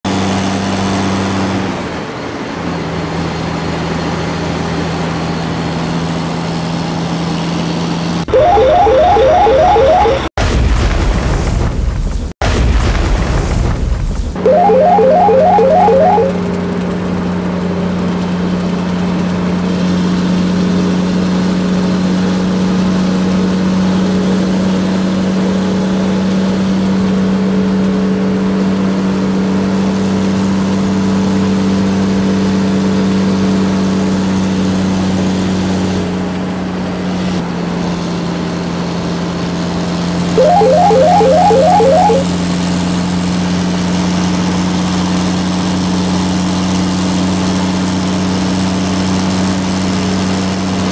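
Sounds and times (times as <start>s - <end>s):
rapid high beeping: 8.3s - 10.3s, 14.4s - 16.4s, 40.4s - 42.3s.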